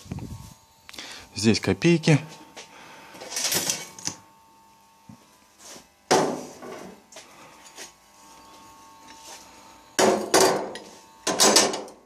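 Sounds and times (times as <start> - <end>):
scrap metal parts clattering: 3.2 - 4.1.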